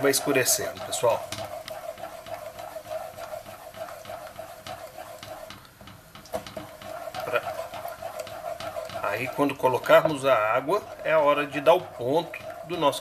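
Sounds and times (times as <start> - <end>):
wooden spoon scraping a pot: 0.0 - 13.0.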